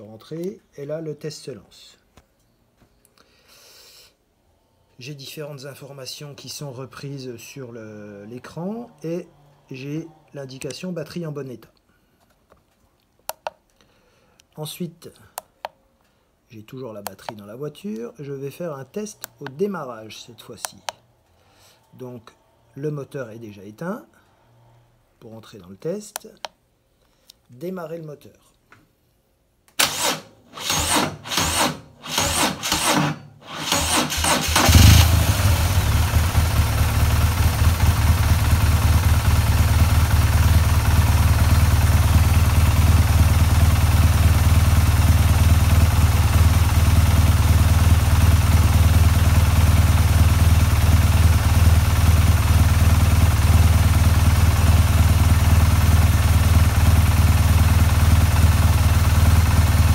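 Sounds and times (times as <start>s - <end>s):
motorcycle engine cranking slowly: 30.7s - 59.9s
motorcycle engine idling: 34.5s - 59.9s.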